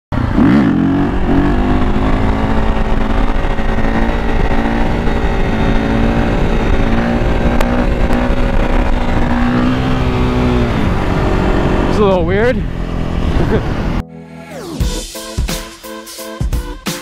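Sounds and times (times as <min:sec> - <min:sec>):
wind noise on microphone: 0:01.0 - 0:11.9.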